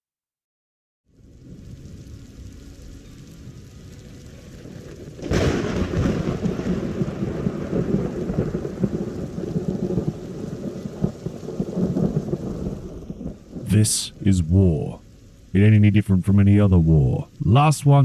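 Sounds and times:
heavy rain: 1.1 - 18.0
thunder rumbling: 1.2 - 18.0
thunderclap: 4.7 - 14.2.

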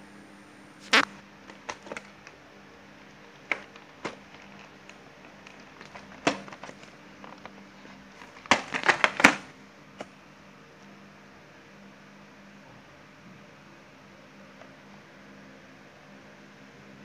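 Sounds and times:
plastic packaging crackling: 0.8 - 2.4, 3.0 - 9.5.

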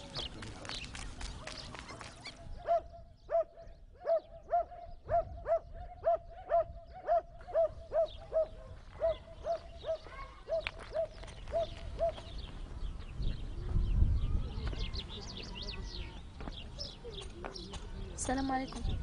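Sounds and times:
dog barking: 2.6 - 12.3.

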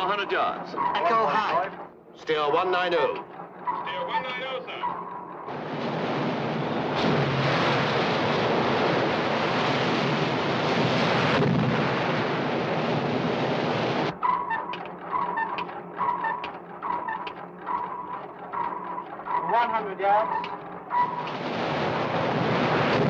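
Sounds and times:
heavy sea breaking against hull: 0.0 - 23.0.

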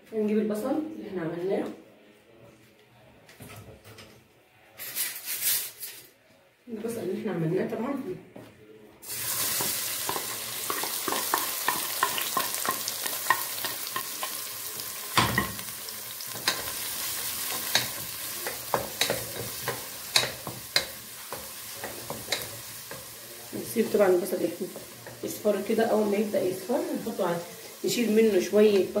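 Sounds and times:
onions sizzling in hot oil: 9.0 - 29.0.

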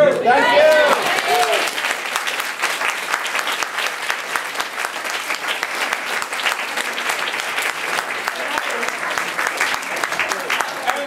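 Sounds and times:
audience applauding: 0.3 - 11.0.

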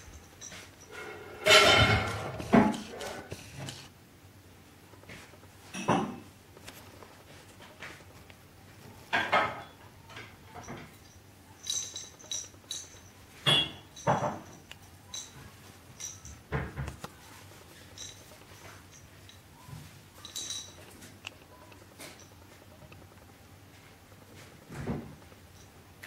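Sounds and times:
plastic cat toy rattling and clinking: 20.2 - 21.2.

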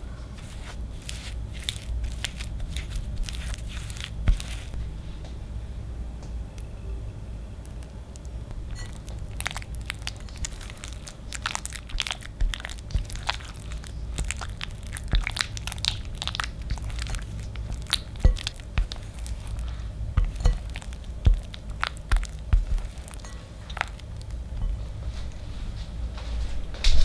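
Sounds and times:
spatula stirring in glass bowl: 0.3 - 4.9, 8.5 - 24.9
spatula knocking on bowl: 20.2 - 22.9.

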